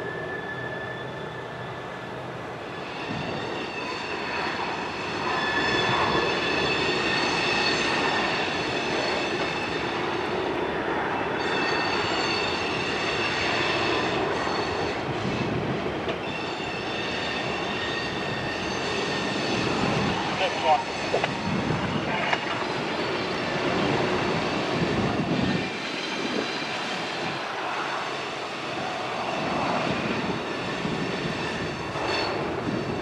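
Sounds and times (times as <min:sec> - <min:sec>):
rumble of wheels on rail: 0:00.0 - 0:33.0
freight car wheels squealing: 0:16.2 - 0:20.1.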